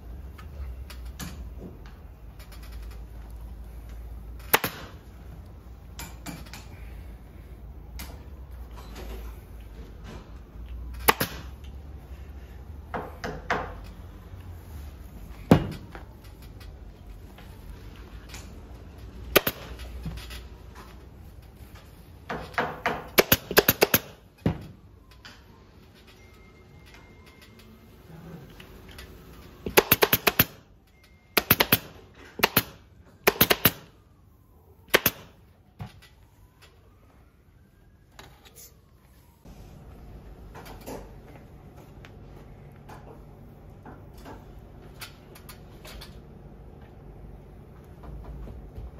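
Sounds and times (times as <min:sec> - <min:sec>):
pneumatic staple gun shots: 0:04.4 - 0:05.0, 0:11.0 - 0:11.5, 0:19.3 - 0:19.8, 0:23.1 - 0:24.2, 0:29.7 - 0:30.6, 0:31.4 - 0:33.9, 0:34.9 - 0:35.4.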